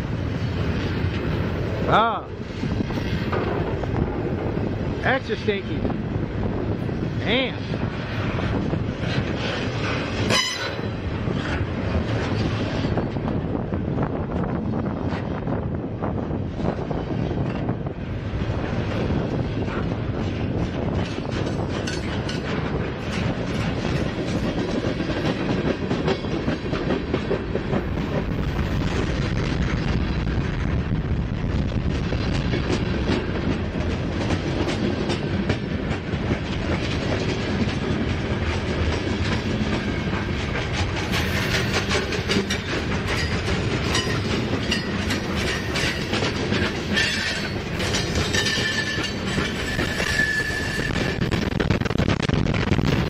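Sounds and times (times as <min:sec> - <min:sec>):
freight train rumbling past: 0:00.0 - 0:53.0
wheels clacking over rail joints: 0:16.7 - 0:28.8, 0:32.2 - 0:51.5
high wheel squeal: 0:46.9 - 0:51.2.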